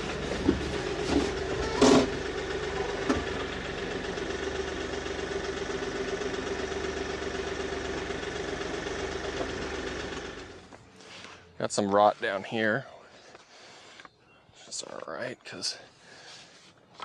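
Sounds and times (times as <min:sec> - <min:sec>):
tractor diesel engine running: 0:00.0 - 0:13.8
loud clunk: 0:00.2 - 0:02.2.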